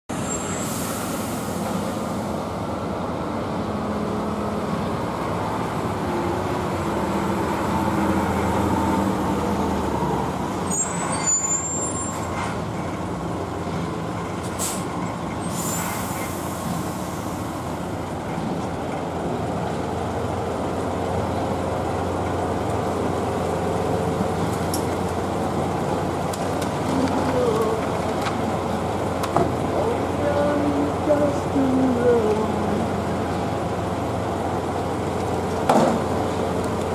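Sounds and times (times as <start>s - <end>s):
diesel truck engines running: 0.1s - 36.9s
air brake hissing: 0.3s - 2.2s, 14.5s - 17.4s.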